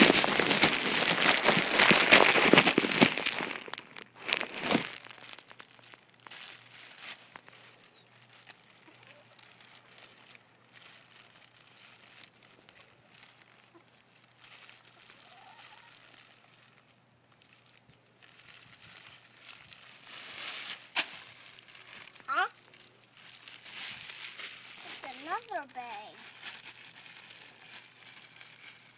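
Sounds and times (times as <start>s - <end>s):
plastic bag crinkling: 0.0s - 28.9s
plastic bag snap: 20.9s - 22.2s.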